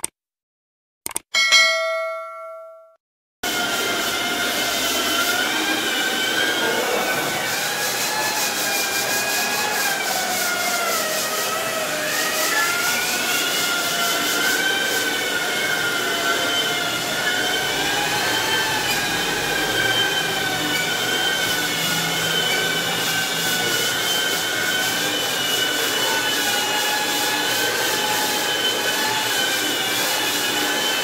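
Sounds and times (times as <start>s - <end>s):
wall sanders hissing: 3.5s - 31.0s
sander motor whines: 14.6s - 31.0s.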